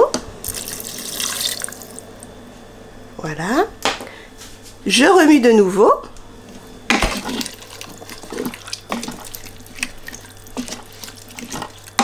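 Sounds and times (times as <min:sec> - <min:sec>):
liquid sloshing in pot: 0:06.5 - 0:12.0
spoon scraping pot: 0:06.9 - 0:12.0.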